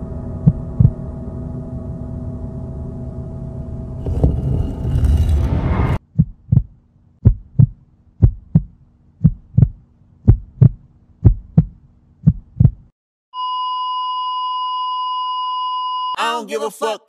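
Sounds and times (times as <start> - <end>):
dense rumbling noise: 0.0 - 8.7
heartbeat double thumps: 0.4 - 1.0, 6.0 - 12.9.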